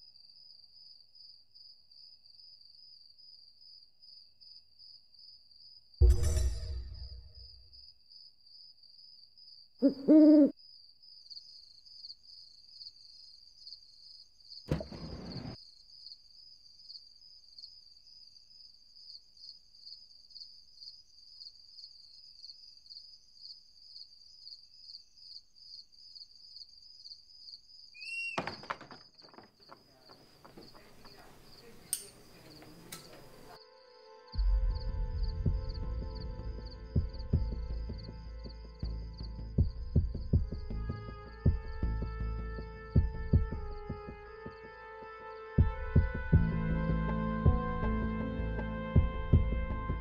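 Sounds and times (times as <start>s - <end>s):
crickets chirring: 7.4s - 40.6s
owl hooting: 9.8s - 10.6s, 28.0s - 28.5s.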